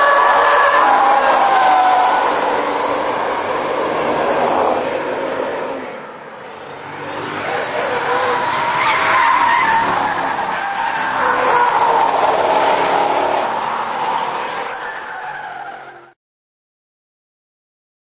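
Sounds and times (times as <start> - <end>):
tyres squealing: 0.0 - 4.7, 7.4 - 16.1
car engine driven hard: 0.0 - 16.1.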